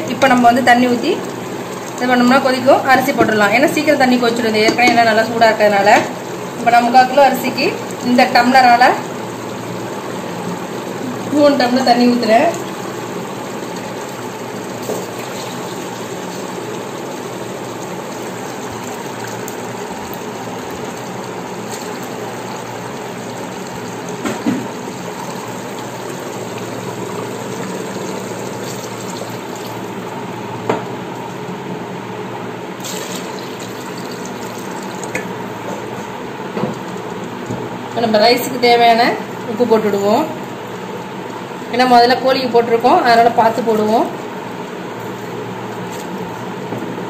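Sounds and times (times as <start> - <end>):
water pouring and splashing: 12.4 - 30.0, 32.8 - 35.9.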